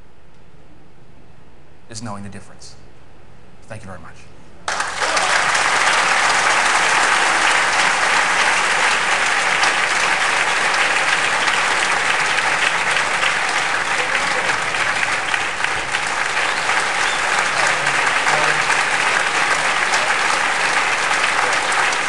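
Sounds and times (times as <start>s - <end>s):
audience applauding: 4.7s - 22.0s.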